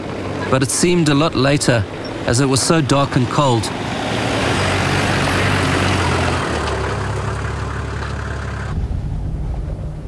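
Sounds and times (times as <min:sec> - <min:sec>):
vehicle engine driving past: 0:03.7 - 0:10.0.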